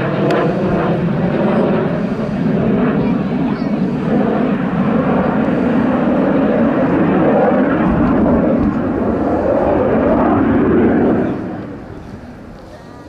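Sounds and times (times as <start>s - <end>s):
jet flying past: 0.0s - 13.0s.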